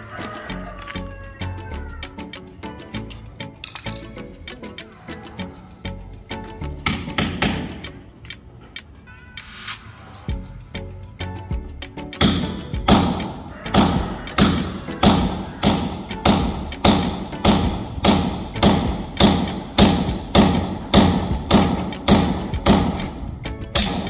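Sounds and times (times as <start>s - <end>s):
hammer blows: 12.2s - 24.0s.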